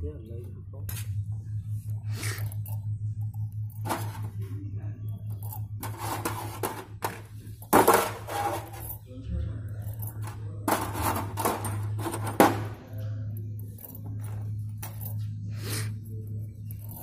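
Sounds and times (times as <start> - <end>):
steady low hum: 0.0 - 17.0
metal parts clinking on metal tray: 5.3 - 9.1, 9.7 - 15.3, 16.6 - 17.0.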